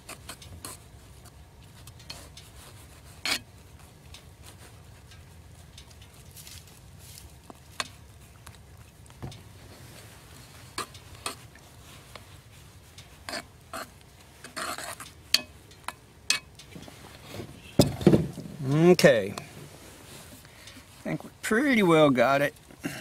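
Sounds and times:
spoon scraping pot: 0:13.2 - 0:15.5.

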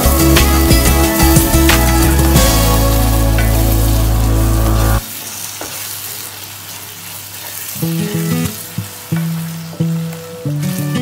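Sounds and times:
sustained chord over deep bass: 0:00.0 - 0:05.0
gravy sizzling in a pan: 0:00.0 - 0:11.0.

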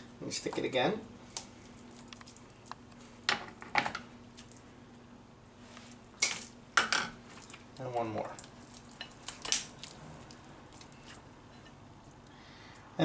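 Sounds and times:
skewers squishing through fish: 0:07.3 - 0:11.3.

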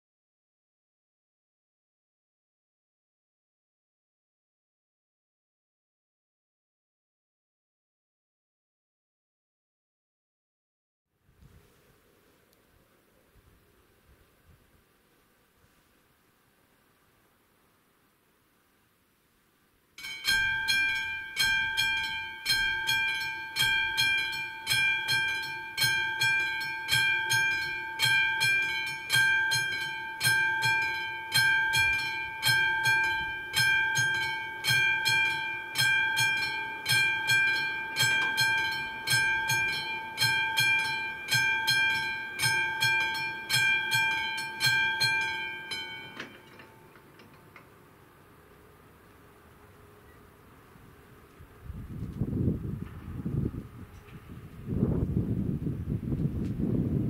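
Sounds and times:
level crossing warning bell ringing: 0:20.0 - 0:47.5.

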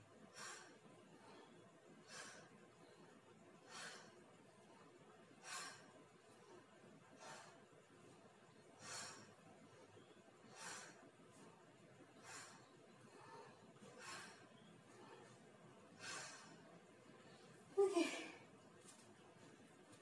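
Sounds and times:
woman breathing out: 0:08.8 - 0:09.4.

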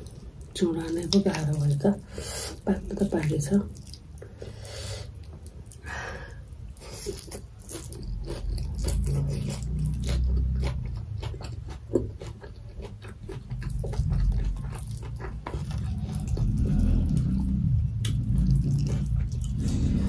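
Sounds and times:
close-miked chewing: 0:00.0 - 0:20.0
low rumble: 0:13.6 - 0:20.0.

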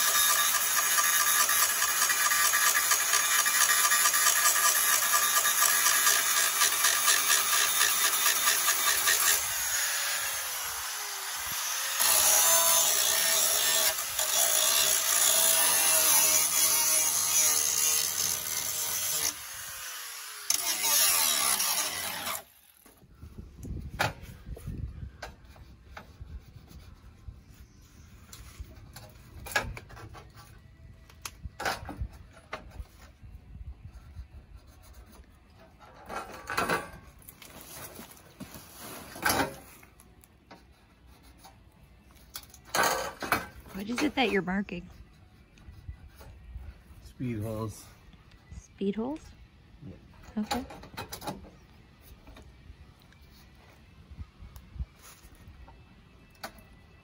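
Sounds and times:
power tool cutting sheet steel: 0:00.0 - 0:22.8.

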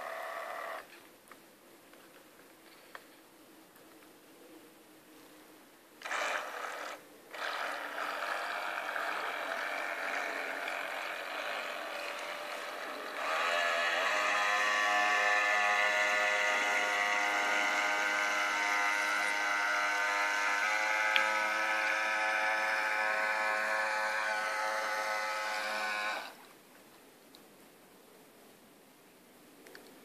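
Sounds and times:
model boat motor whining: 0:00.0 - 0:00.9, 0:06.0 - 0:26.5.

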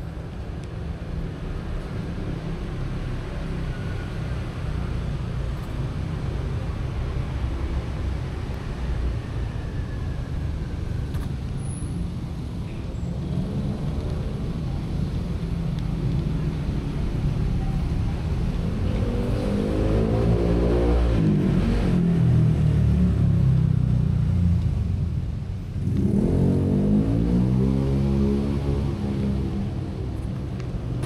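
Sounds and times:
vehicle engine revving: 0:18.7 - 0:22.7, 0:25.8 - 0:29.7.

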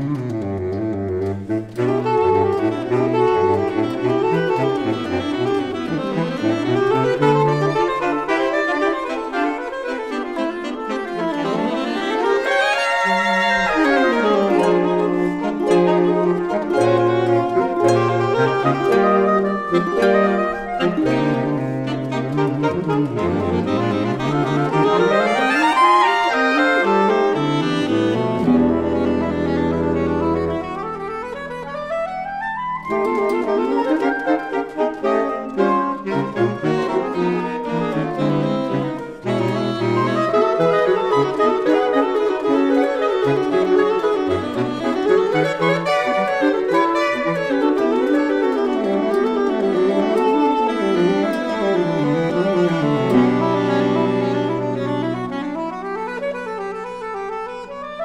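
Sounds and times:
harp: 0:00.0 - 0:58.0
saxophone ensemble playing: 0:00.0 - 0:58.0.

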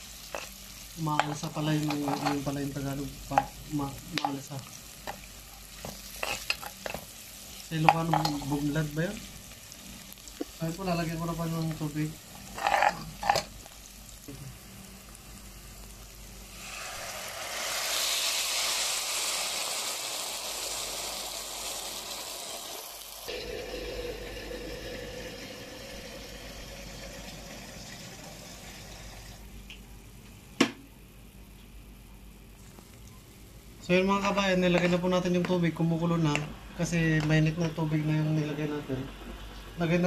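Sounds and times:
water sizzling in hot pan: 0:00.0 - 0:29.4.

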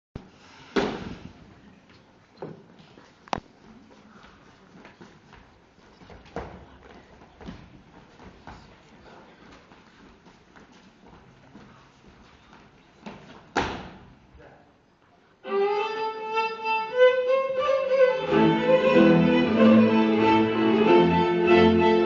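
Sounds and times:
folk string band playing: 0:15.4 - 0:22.0
violin melody: 0:15.4 - 0:22.0.

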